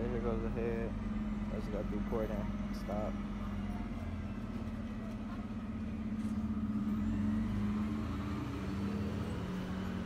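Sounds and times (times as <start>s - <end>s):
engine humming: 0.0s - 10.0s.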